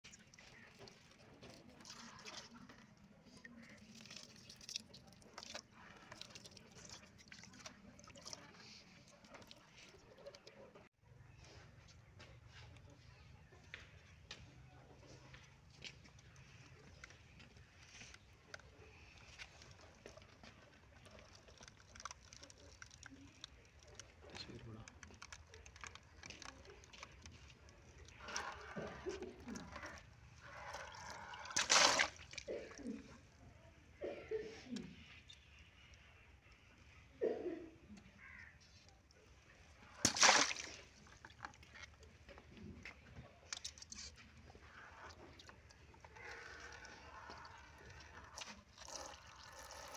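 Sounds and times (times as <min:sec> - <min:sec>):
small wet clicks: 0:00.0 - 0:10.8, 0:14.3 - 0:33.6, 0:37.9 - 0:49.9
water sloshing: 0:25.1 - 0:33.3, 0:39.2 - 0:49.9
water spraying and splashing: 0:31.5 - 0:32.4, 0:40.0 - 0:41.0
water balloon bursting: 0:31.6 - 0:32.3, 0:40.0 - 0:41.0.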